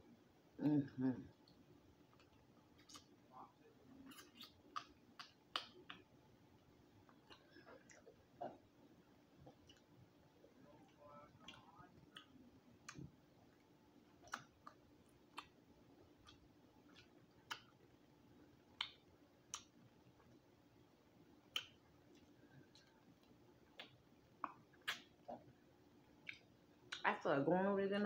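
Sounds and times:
faint room hum: 0.0 - 28.0
mouth clicks and smacks: 1.3 - 6.1, 7.0 - 8.6, 10.8 - 13.6, 14.2 - 15.6, 16.2 - 17.9, 18.7 - 20.4, 21.5 - 25.5, 26.2 - 27.0.

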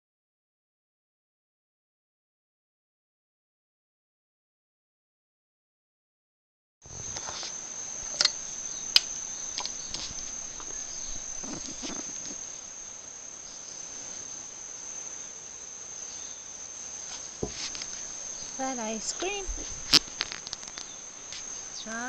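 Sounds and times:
insects chirring: 6.9 - 22.0
soft knocks: 17.4 - 17.8.

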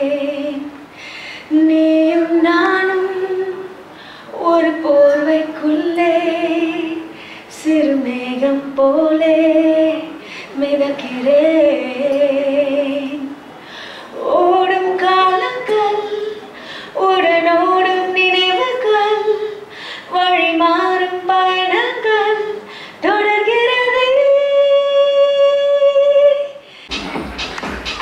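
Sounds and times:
woman singing unaccompanied: 0.0 - 13.4, 14.1 - 26.6
singer breathing: 0.8 - 1.5, 3.8 - 4.3, 7.1 - 7.6, 10.2 - 10.6, 13.5 - 14.2, 16.0 - 17.0, 19.4 - 20.1, 22.6 - 23.0, 26.6 - 27.0.

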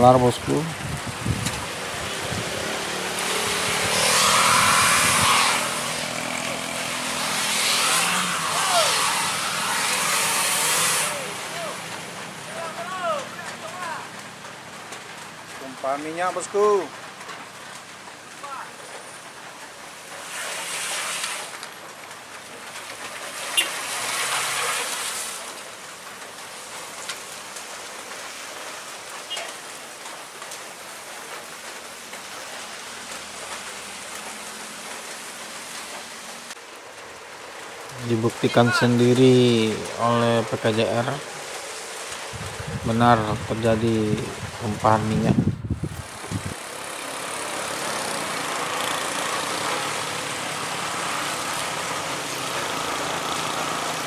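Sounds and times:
car tyres swishing through water: 0.0 - 54.0
steady rain hiss: 0.0 - 54.0
car engine revving: 1.7 - 12.6
tyre wheelspin hiss: 20.1 - 21.7, 23.4 - 25.6.

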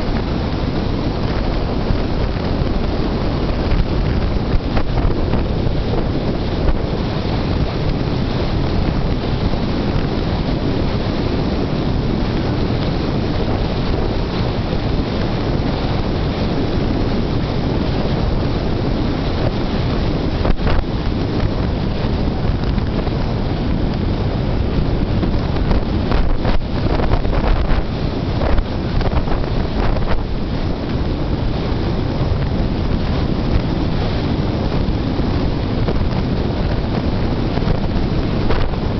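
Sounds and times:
car road noise: 0.0 - 38.9
wind buffeting microphone: 0.0 - 38.9.

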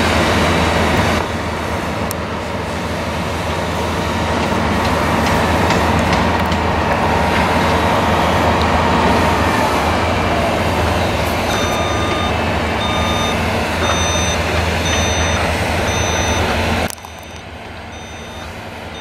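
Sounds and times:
combine harvester drone: 0.0 - 19.0
faint machine whine: 11.4 - 19.0.

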